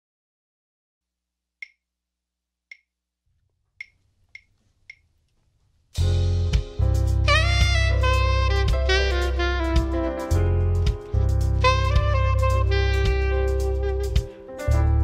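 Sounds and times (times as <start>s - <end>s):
band with saxophone: 7.1s - 15.0s.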